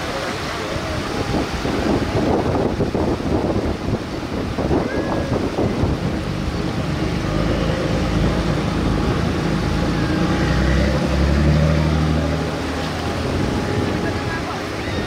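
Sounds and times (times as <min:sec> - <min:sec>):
heavy diesel engines: 0:05.3 - 0:15.0.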